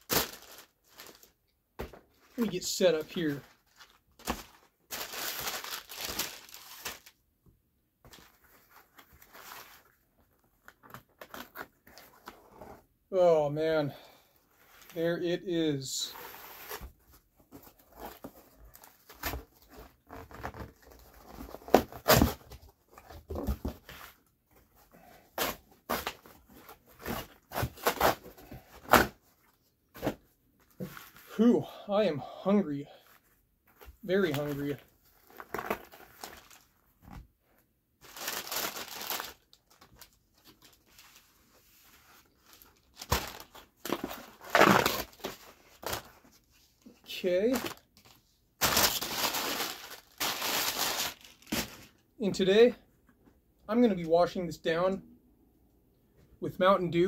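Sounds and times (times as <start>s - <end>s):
cardboard and paper rustling: 0.0s - 7.1s, 38.0s - 46.6s, 47.5s - 51.9s.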